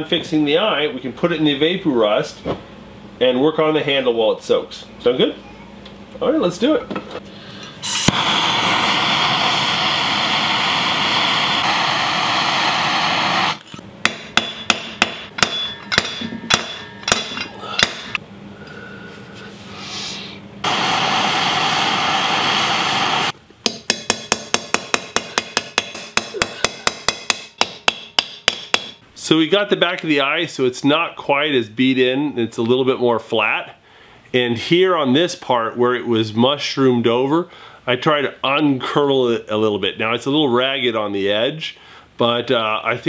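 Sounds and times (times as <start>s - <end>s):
gas torch rushing: 7.8s - 15.3s, 19.8s - 23.4s
hammer striking metal: 14.0s - 18.2s, 23.6s - 29.0s.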